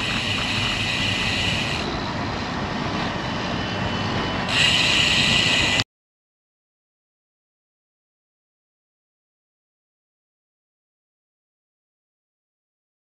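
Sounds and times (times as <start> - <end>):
wind rush on microphone: 0.0 - 5.8.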